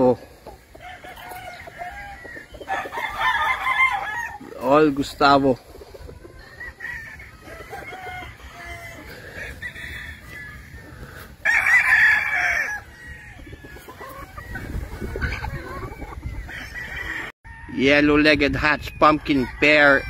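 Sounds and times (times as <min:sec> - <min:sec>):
chickens clucking: 0:00.0 - 0:17.3
rooster crowing: 0:00.8 - 0:04.4, 0:06.4 - 0:14.6, 0:16.5 - 0:17.8.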